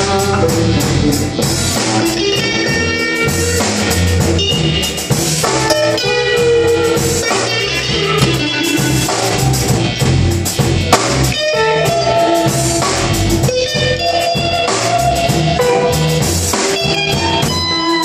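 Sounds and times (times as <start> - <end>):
bass guitar: 0.0 - 18.0
drum kit: 0.0 - 18.0
electric guitar lead notes: 0.0 - 18.0.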